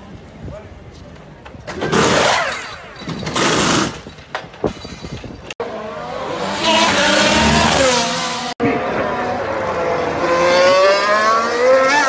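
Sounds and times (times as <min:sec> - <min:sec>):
pneumatic wheel guns firing: 0:01.7 - 0:04.2
race car engine: 0:05.6 - 0:12.0.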